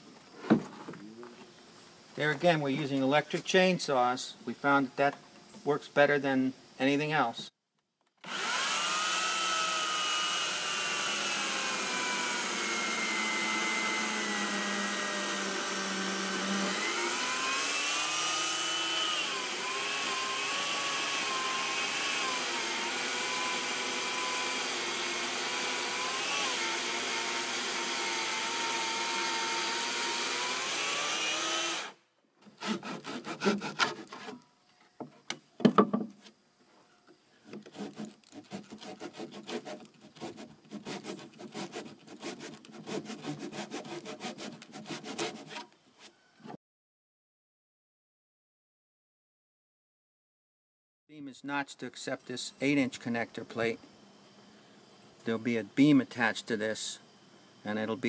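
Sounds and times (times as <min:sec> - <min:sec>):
electric chainsaw cutting wood: 0:08.2 - 0:32.0
hand tool scraping wood: 0:29.6 - 0:35.3, 0:37.4 - 0:46.2
sharp knocks on wood: 0:35.6 - 0:36.1.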